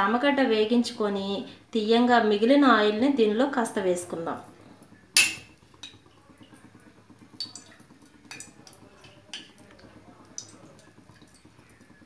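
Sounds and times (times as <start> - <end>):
steel spoon clinking on metal pots: 5.2 - 6.0.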